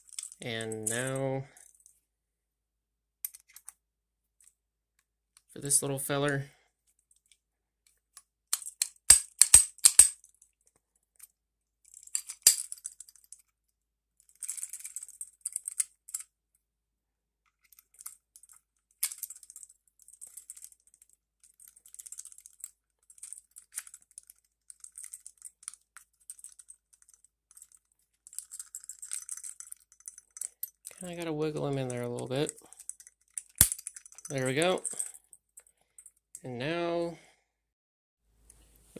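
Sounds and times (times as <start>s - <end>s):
pistol parts clicking and scraping: 0.0s - 1.9s, 3.2s - 3.8s, 7.2s - 13.5s, 14.2s - 16.3s, 17.5s - 36.4s.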